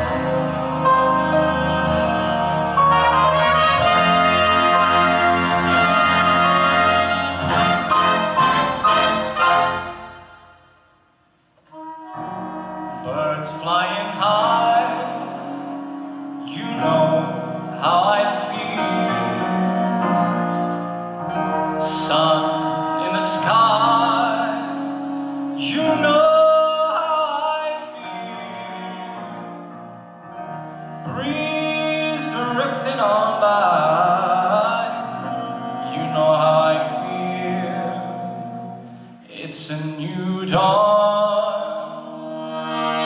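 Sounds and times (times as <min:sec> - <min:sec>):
string and piano chords: 0:00.0 - 0:10.6, 0:11.6 - 0:43.0
person singing: 0:12.0 - 0:20.7, 0:21.6 - 0:29.7, 0:31.0 - 0:38.5, 0:39.3 - 0:43.0.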